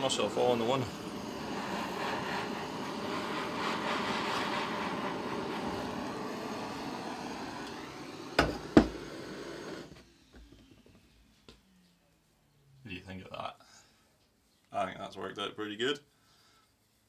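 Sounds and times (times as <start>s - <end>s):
blowtorch hissing: 0.0s - 10.4s.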